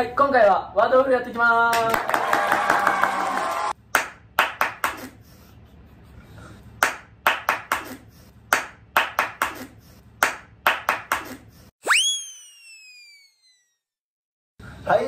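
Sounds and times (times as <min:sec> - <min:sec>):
hand claps: 0:01.7 - 0:05.2, 0:06.8 - 0:11.4.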